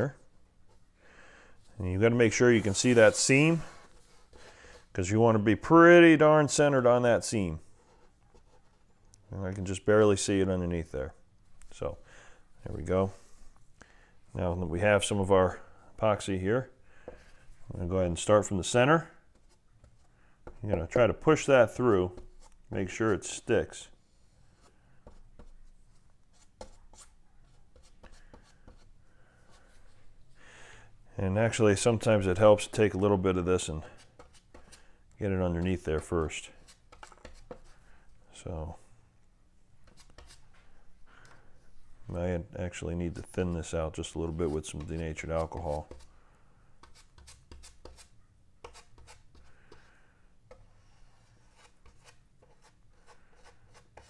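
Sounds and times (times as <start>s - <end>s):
low steady hum: 0.0s - 54.0s
brush stirring epoxy in cup: 43.1s - 46.1s, 46.8s - 49.9s, 50.5s - 54.0s.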